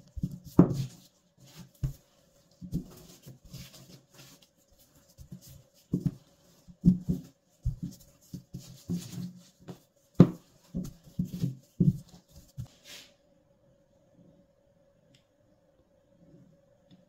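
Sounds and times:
rolling pin bumping over dough: 0:00.0 - 0:01.0, 0:05.2 - 0:12.7
dough patted by hand: 0:00.0 - 0:04.4, 0:05.1 - 0:12.7
faint steady hum: 0:00.0 - 0:17.0.

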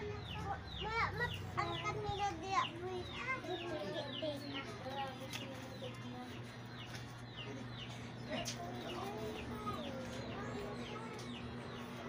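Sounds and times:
birds peeping: 0:00.0 - 0:12.0.

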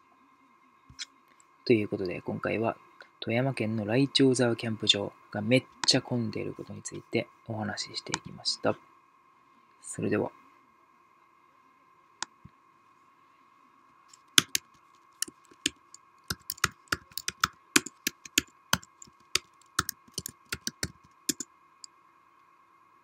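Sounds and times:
faint steady hum: 0:00.0 - 0:23.0
keyboard key clicks: 0:14.4 - 0:21.4.

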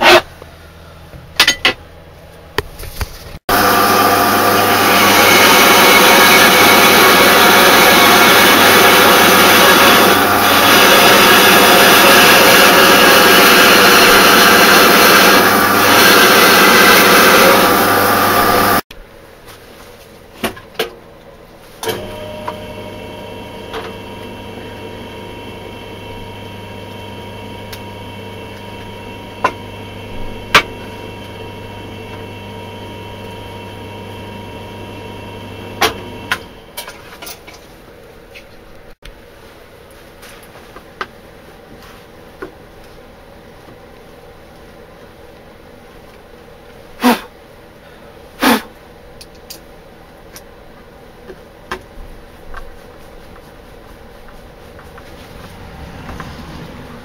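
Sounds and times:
band saw cutting wood: 0:03.5 - 0:18.8, 0:21.8 - 0:36.7.

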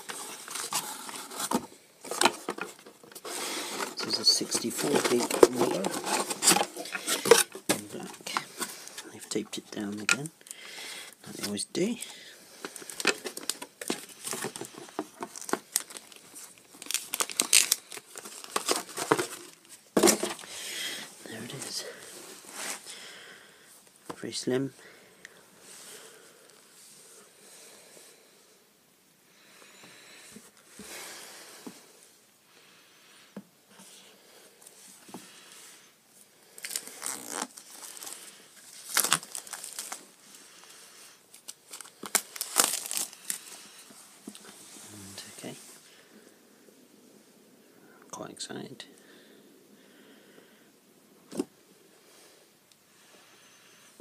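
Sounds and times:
packaging crinkling and tearing: 0:00.0 - 0:09.1, 0:12.6 - 0:20.5, 0:36.6 - 0:40.2, 0:41.3 - 0:43.8
plastic wrapping crackling: 0:00.0 - 0:09.4, 0:11.3 - 0:20.6, 0:36.6 - 0:44.6.

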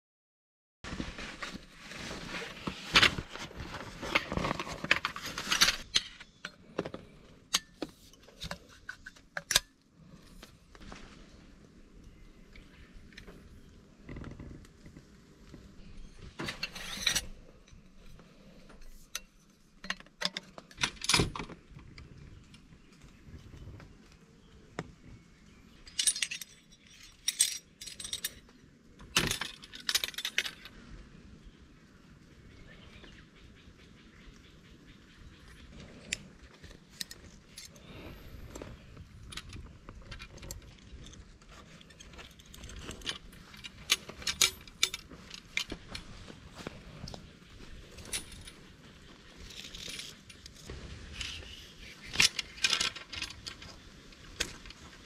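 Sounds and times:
metal camping gear clinking: 0:01.1 - 0:11.0, 0:12.1 - 0:21.6, 0:25.8 - 0:30.9, 0:35.7 - 0:55.0.

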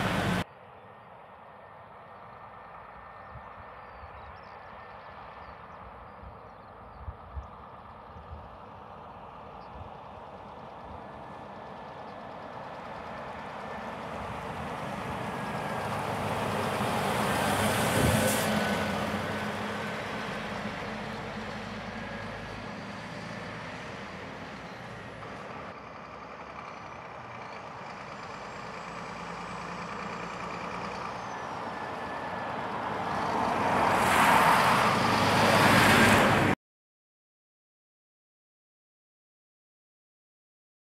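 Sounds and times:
truck driving past: 0:00.0 - 0:00.5, 0:07.9 - 0:36.6.

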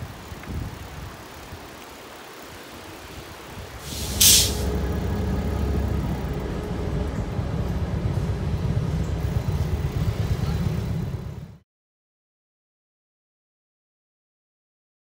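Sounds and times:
faint engine hum: 0:00.0 - 0:11.6
low train rumble: 0:00.0 - 0:11.6
air brake hiss: 0:03.8 - 0:04.8.

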